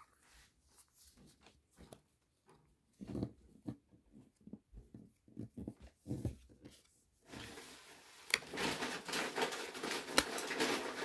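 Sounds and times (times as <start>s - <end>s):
foil pack and cards crinkling: 8.4s - 11.0s.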